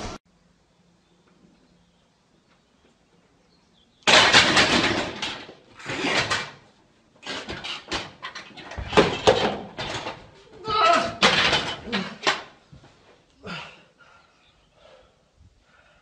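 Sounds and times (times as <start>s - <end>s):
weight plates crashing to floor: 4.1s - 6.6s, 7.2s - 12.6s.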